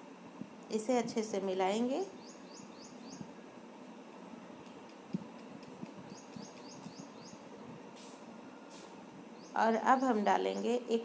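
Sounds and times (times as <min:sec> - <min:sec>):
bird chirping: 0:02.1 - 0:03.3, 0:06.0 - 0:07.4, 0:09.4 - 0:10.8.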